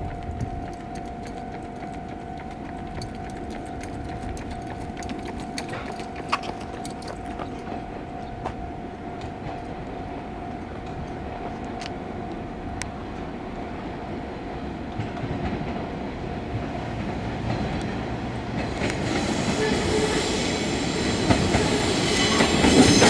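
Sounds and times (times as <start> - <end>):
wheels clicking on track: 0.0 - 8.6, 14.9 - 23.0
train rumble: 0.0 - 23.0.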